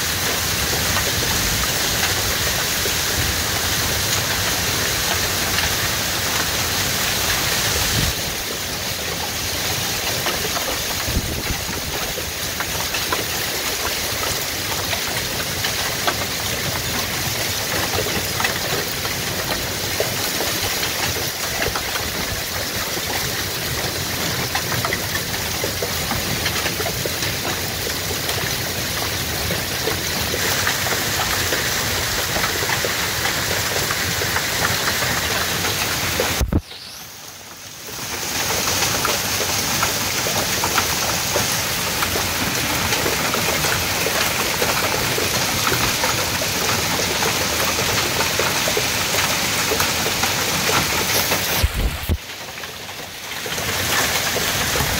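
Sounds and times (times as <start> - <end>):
heavy rain pouring: 0.0 - 54.9
raindrop taps: 10.0 - 36.9, 38.1 - 54.9
gusting wind: 51.4 - 52.2.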